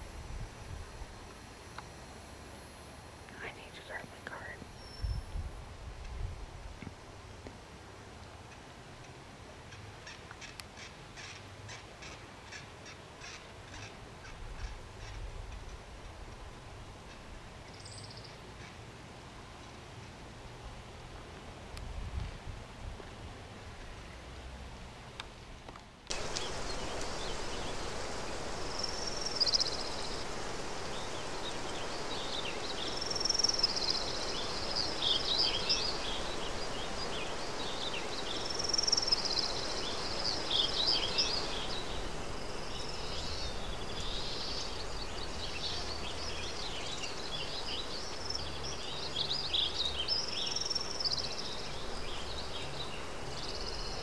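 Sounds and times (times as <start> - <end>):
steady rushing hiss: 0.0 - 54.0
bird singing: 26.1 - 54.0.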